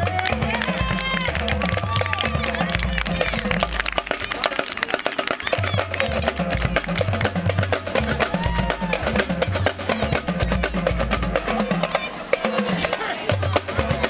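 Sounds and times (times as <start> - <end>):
marching band drums: 0.0 - 14.0.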